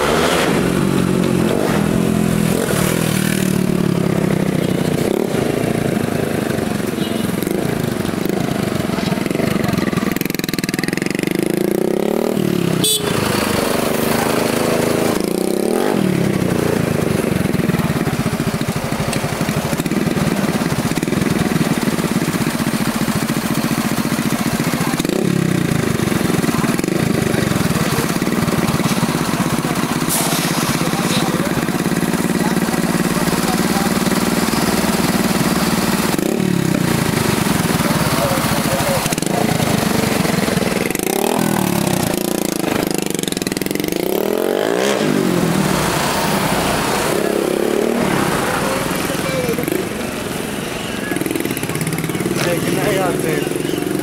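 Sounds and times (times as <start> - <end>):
engines revving: 0.0 - 54.0.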